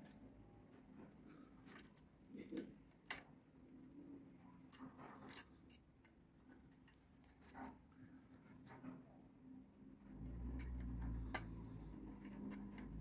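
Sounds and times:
lock pick clicking and scraping: 0:10.6 - 0:13.0.

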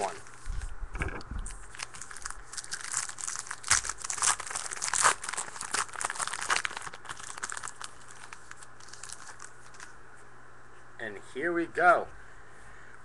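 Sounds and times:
plastic wrapper crinkling and tearing: 0:01.5 - 0:09.9.

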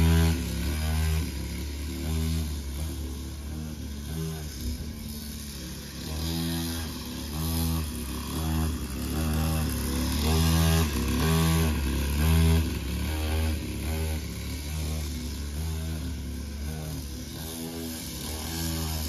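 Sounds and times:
small dirt bike engine revving: 0:00.0 - 0:19.0.

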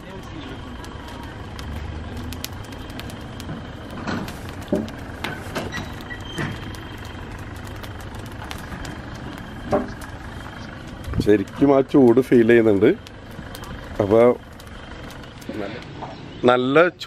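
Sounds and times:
straw fire burning and crackling: 0:00.0 - 0:17.0.

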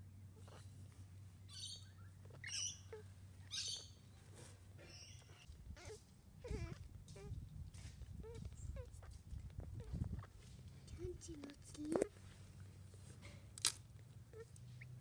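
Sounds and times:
newborn kittens mewing: 0:04.8 - 0:07.4.

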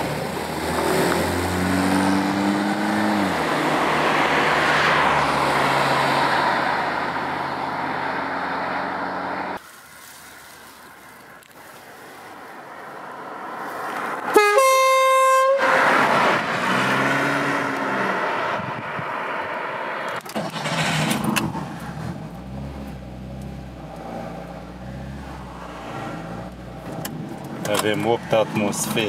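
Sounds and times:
car engine and tyre noise: 0:00.0 - 0:29.0
car air horn blast: 0:14.3 - 0:16.0.

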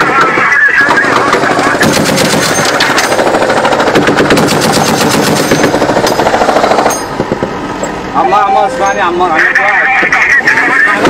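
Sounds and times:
machine gun automatic fire: 0:00.8 - 0:07.0.

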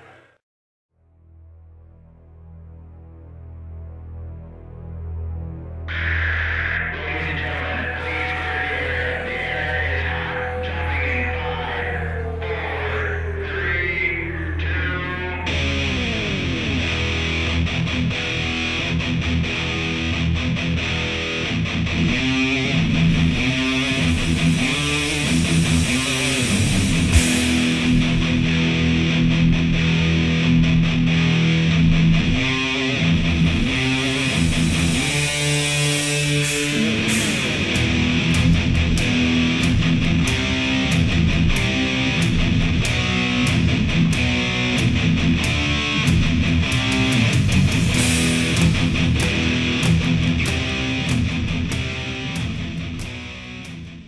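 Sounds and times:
distorted electric guitar chords: 0:01.6 - 0:54.0
heavy metal band playing: 0:05.9 - 0:54.0
sharp hit with high hiss: 0:23.5 - 0:27.9, 0:33.9 - 0:37.6.

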